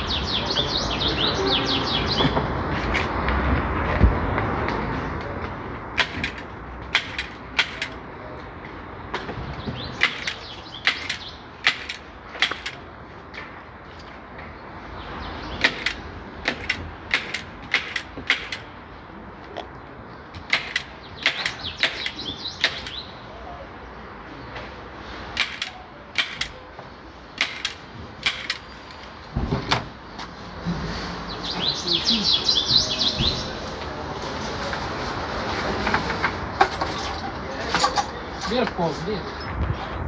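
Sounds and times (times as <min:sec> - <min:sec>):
staple gun firing: 0:25.4 - 0:26.6, 0:27.4 - 0:28.6.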